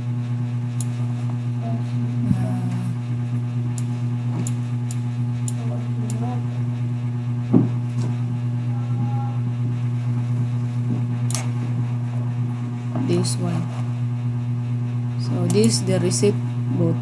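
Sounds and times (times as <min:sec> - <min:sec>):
low electrical hum: 0:00.0 - 0:17.0
knock: 0:07.5 - 0:07.8.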